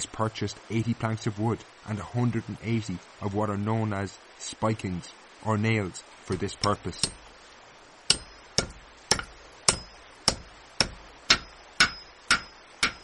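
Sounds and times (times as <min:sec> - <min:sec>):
hammer driving nails into wood: 0:08.1 - 0:13.0.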